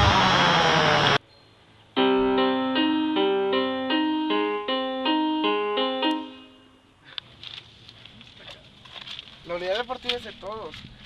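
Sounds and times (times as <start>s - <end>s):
electric piano chords: 2.0s - 7.0s.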